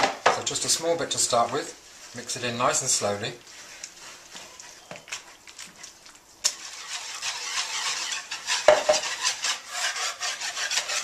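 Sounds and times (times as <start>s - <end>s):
whisk scraping bowl: 6.4s - 11.0s
knock: 8.7s - 9.0s.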